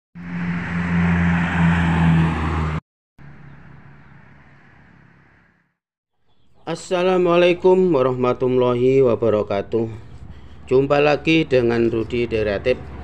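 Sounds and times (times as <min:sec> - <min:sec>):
tyre and road noise: 0:00.2 - 0:05.7, 0:07.4 - 0:13.0
vehicle engine hum: 0:00.2 - 0:05.7, 0:09.1 - 0:13.0.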